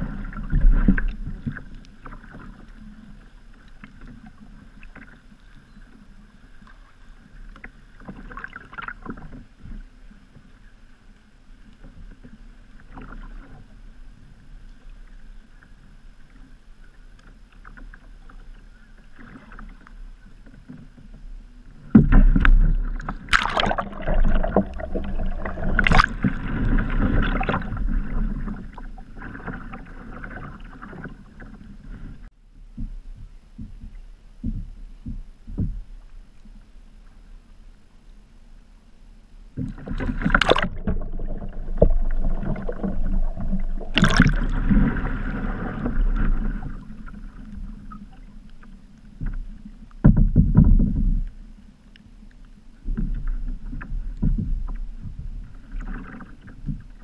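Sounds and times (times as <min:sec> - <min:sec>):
paddle strokes: 0:00.0 - 0:38.8, 0:39.4 - 0:57.0
water lapping: 0:11.8 - 0:32.4, 0:39.6 - 0:57.0
loud water splashing: 0:22.9 - 0:28.2, 0:40.0 - 0:46.8.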